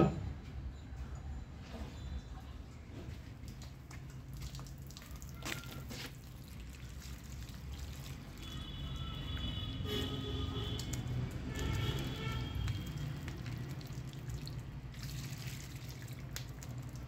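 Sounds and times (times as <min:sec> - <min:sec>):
water trickling: 0:03.1 - 0:17.0
water dripping onto leaves: 0:03.4 - 0:17.0.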